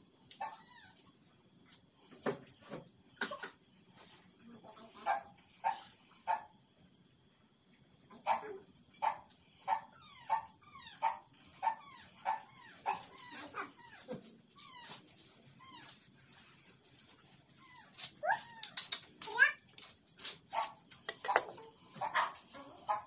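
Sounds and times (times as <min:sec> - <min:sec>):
dog yapping: 0:05.1 - 0:06.5, 0:08.2 - 0:14.1.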